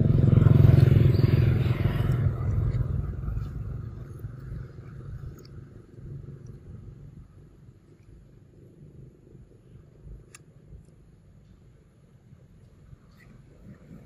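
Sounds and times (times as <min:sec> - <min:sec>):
vehicle engine passing by: 0:00.0 - 0:05.4.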